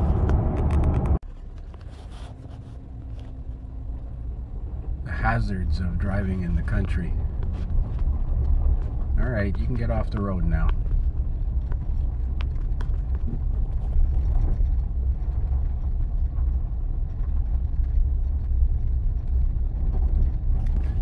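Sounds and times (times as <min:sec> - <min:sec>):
engine and tyre rumble: 0:00.0 - 0:21.0.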